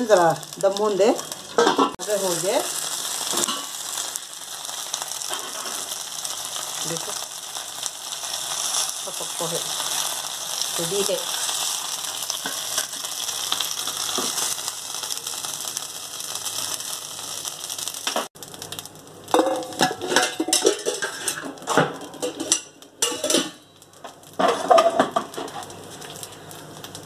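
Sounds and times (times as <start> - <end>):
oil sizzling in frying pan: 0.0 - 27.0
utensils and dishes clattering: 1.5 - 2.0, 5.3 - 5.9, 19.3 - 23.7, 24.4 - 25.6.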